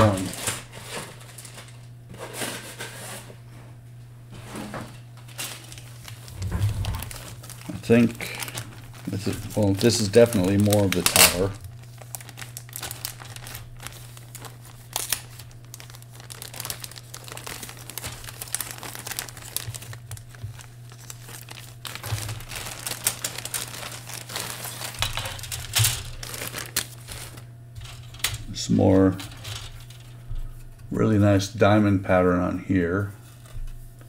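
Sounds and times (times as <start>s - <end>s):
plastic bag crinkling: 0.0s - 2.0s, 5.2s - 30.6s.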